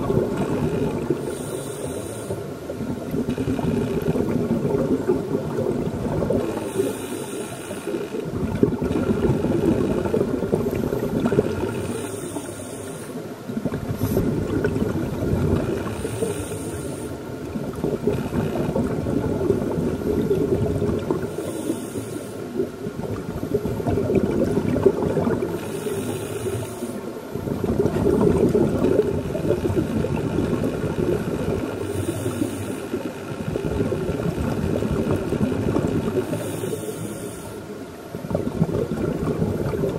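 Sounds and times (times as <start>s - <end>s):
bubbling of exhaled air: 0.0s - 39.9s
regulator hiss on inhalation: 1.2s - 2.5s, 6.6s - 8.2s, 11.8s - 13.3s, 15.8s - 17.2s, 21.3s - 22.5s, 25.6s - 27.1s, 31.8s - 33.0s, 36.2s - 37.7s.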